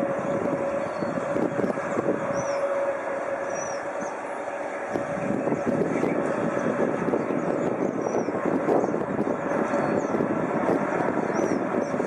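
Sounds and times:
distant jet engines running: 0.0s - 12.0s.

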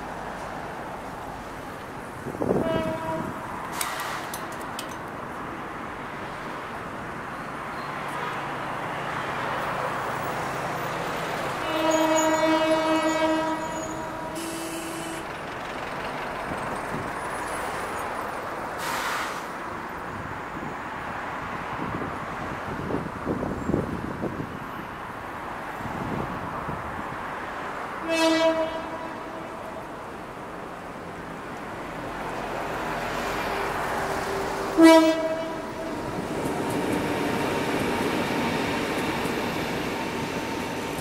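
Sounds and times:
train horn: 2.5s - 3.5s, 11.6s - 15.2s, 28.0s - 29.8s, 33.5s - 36.2s.

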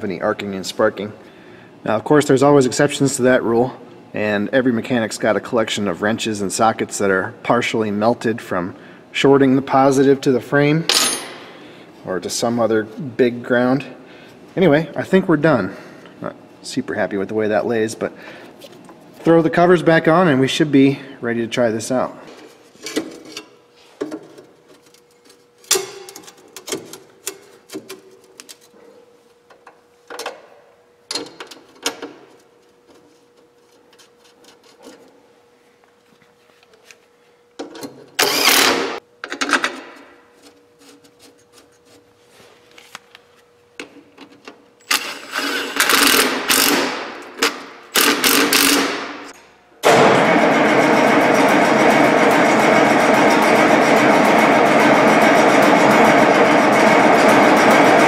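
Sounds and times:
impact driver hammering bolts: 45.8s - 49.2s.

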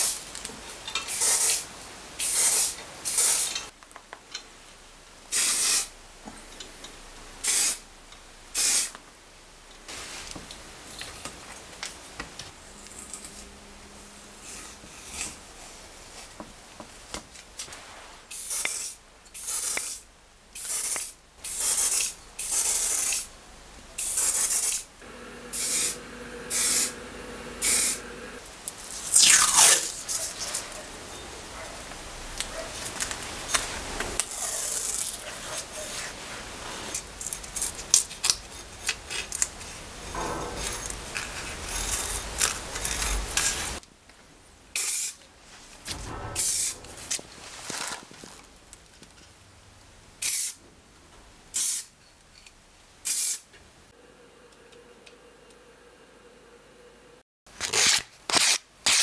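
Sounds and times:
spray paint can hissing: 1.1s - 1.6s, 2.2s - 3.6s, 5.3s - 5.9s, 7.4s - 7.8s, 8.6s - 8.9s, 18.3s - 20.0s, 20.6s - 23.3s, 24.0s - 24.9s, 25.5s - 26.9s, 27.6s - 28.0s, 44.8s - 45.2s, 50.2s - 50.6s, 51.6s - 51.9s, 53.0s - 53.4s.

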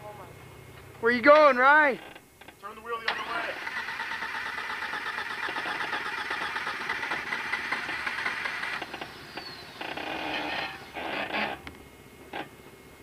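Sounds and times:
engine crawling over rocks: 3.2s - 11.7s.

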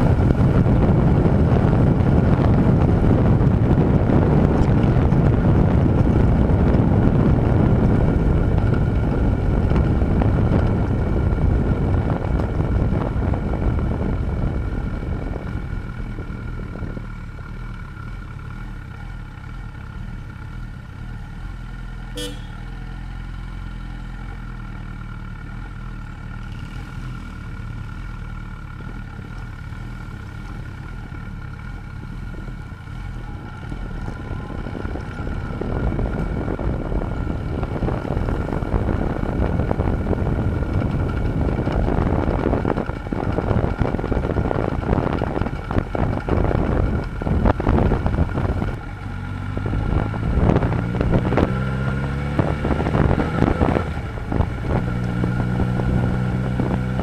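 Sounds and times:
wind rushing over microphone: 0.0s - 17.2s, 32.3s - 57.0s
motorcycle engine running: 0.0s - 57.0s.

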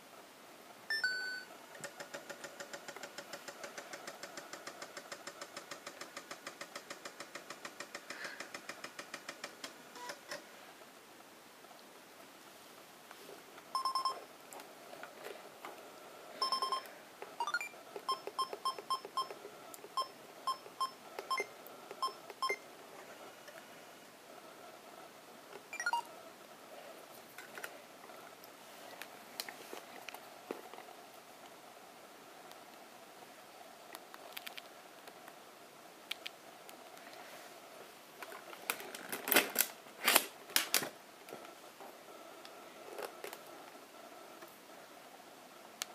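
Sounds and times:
floppy drive clicks and clacks: 1.7s - 10.4s.

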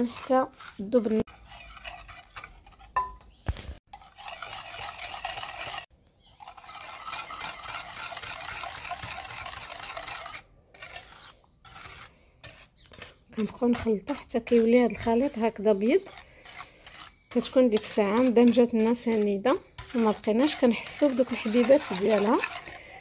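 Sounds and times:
whisk beating in ceramic bowl: 3.9s - 5.8s, 6.4s - 11.2s, 13.0s - 22.9s.

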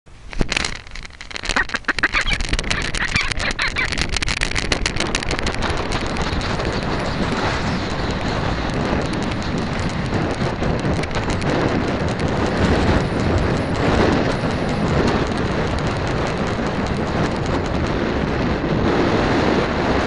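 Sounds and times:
wind noise on microphone: 0.1s - 20.0s
ducks quacking: 1.4s - 4.0s.

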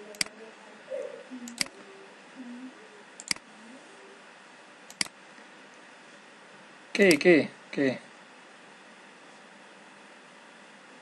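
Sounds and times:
faint room noise: 0.0s - 11.0s
computer mouse clicks: 1.5s - 1.8s, 3.2s - 3.4s, 4.9s - 5.2s.

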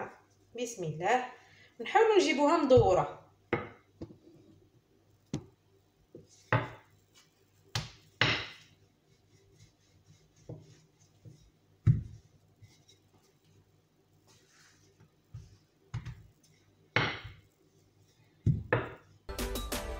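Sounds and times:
rolling pin knocking on stone: 17.0s - 17.4s, 18.4s - 19.0s.

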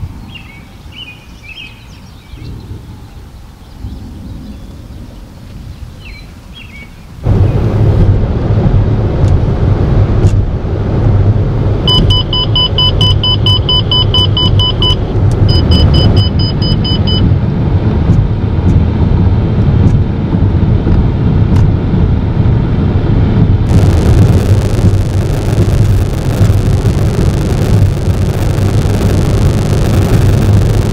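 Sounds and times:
car road and engine rumble: 0.0s - 30.9s
rapid electronic beeps: 11.9s - 17.3s, 23.7s - 30.9s
wind hiss: 23.6s - 30.9s.

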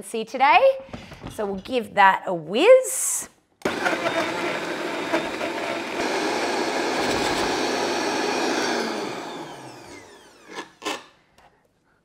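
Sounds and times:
blender running: 3.6s - 11.1s
motor winding down whine: 5.1s - 10.6s.

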